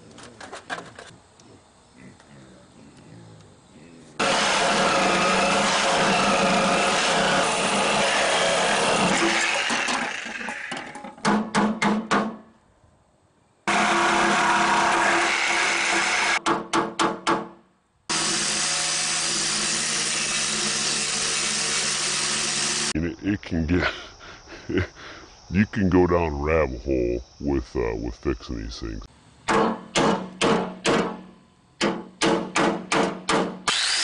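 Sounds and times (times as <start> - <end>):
reciprocating saw cutting metal: 4.2 - 10.8, 13.7 - 16.4, 18.1 - 23.0, 33.6 - 34.0.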